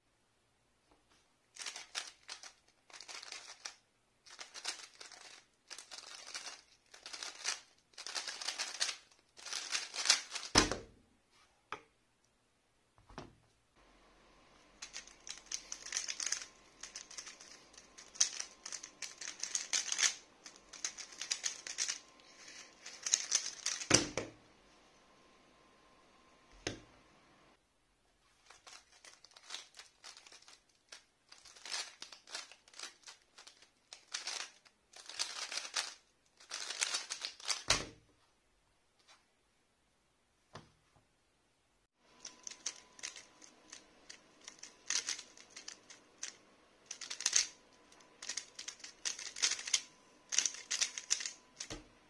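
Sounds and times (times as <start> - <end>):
puzzle cube layers clacking: 1.6 - 10.7, 14.7 - 24.3, 28.4 - 37.8, 42.2 - 51.8.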